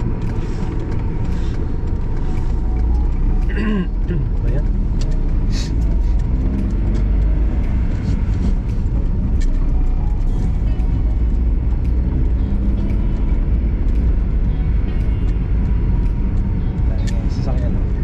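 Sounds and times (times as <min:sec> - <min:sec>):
car engine and road rumble: 0:00.0 - 0:18.0.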